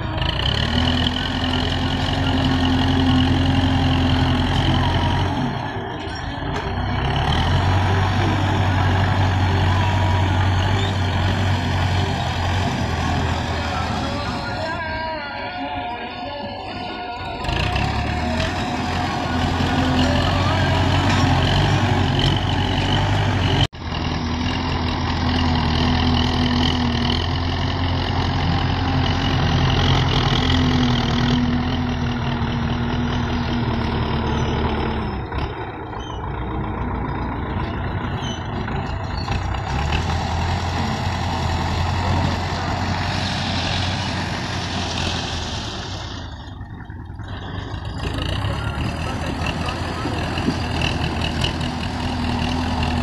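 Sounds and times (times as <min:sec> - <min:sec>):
tractor diesel engine under load: 0:00.0 - 0:53.0.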